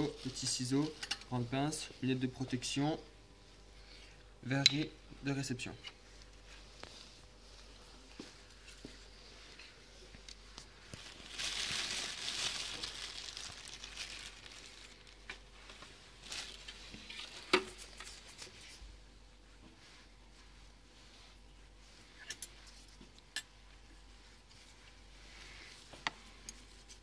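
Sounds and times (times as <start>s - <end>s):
plastic bag crinkling: 0.0s - 1.2s, 10.9s - 18.2s.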